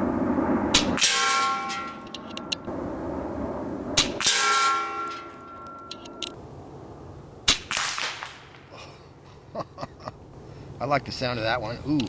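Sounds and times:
metal target ringing: 0.7 - 2.7, 4.0 - 6.4
pellet striking target: 0.8 - 2.1, 4.0 - 5.5
air rifle crack: 7.5 - 8.8.

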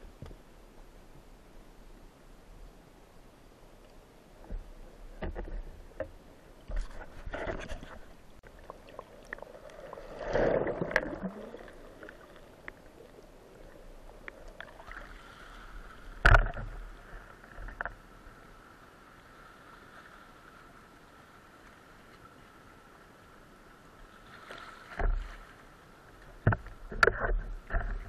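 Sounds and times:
water sloshing and rushing: 3.6 - 28.0.

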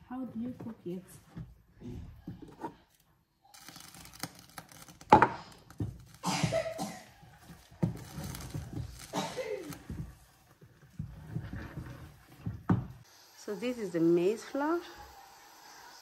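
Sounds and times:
wooden stick scraping metal pot: 7.3 - 12.6.

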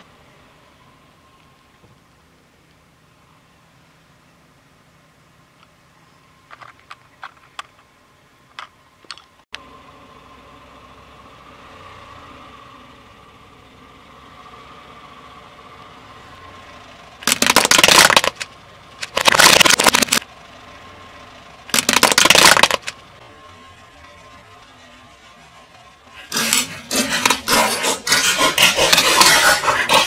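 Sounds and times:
plastic toys crunching under tyre: 17.2 - 20.2, 21.7 - 23.0, 26.2 - 30.0.

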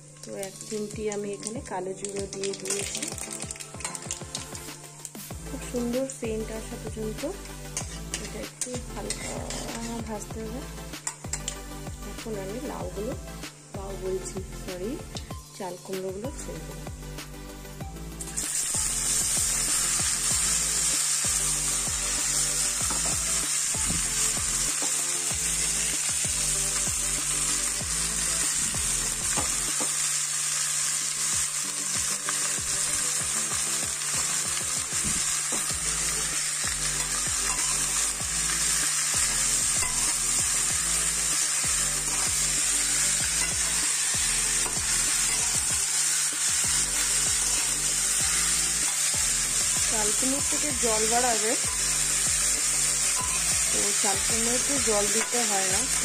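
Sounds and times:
food sizzling in hot oil: 0.0 - 56.0
spatula scraping a metal pan: 9.0 - 10.0, 37.4 - 37.9.

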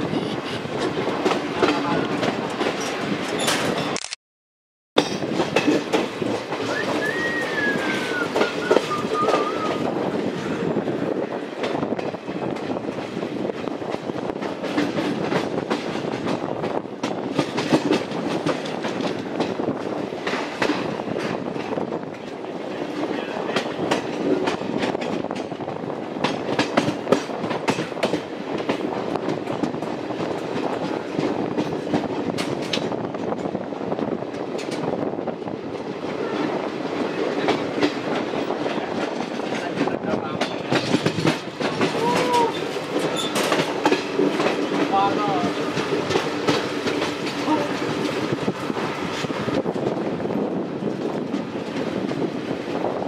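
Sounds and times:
train rumble: 0.0 - 4.0, 5.0 - 53.0
wheels clicking over rail joints: 5.0 - 9.5, 36.9 - 52.6.

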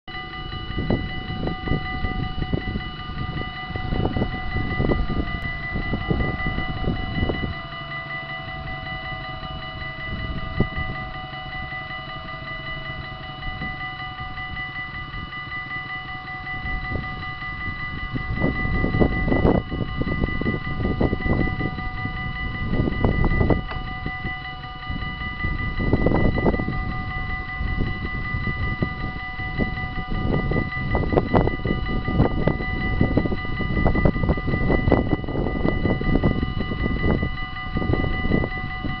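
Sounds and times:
level crossing bell ringing: 0.1 - 39.0
wind noise on microphone: 0.1 - 39.0.

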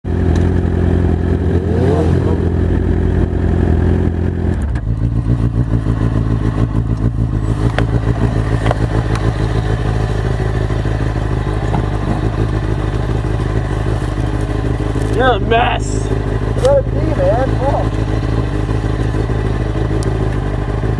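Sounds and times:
motorcycle engine idling: 0.1 - 20.9
motorcycle engine revving: 0.1 - 20.9.

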